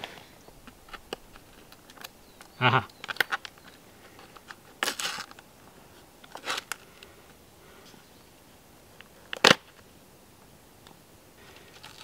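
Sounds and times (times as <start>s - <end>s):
plastic wrapping crinkling: 3.0s - 5.4s.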